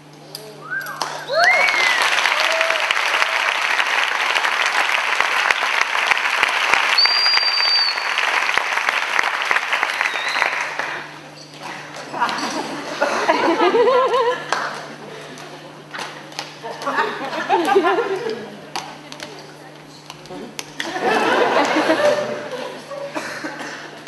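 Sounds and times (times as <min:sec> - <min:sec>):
people whooping: 0:00.4 - 0:04.2, 0:06.9 - 0:08.5, 0:09.7 - 0:11.1
audience applauding: 0:01.0 - 0:11.2
high held whistle: 0:06.9 - 0:08.3, 0:09.9 - 0:10.7.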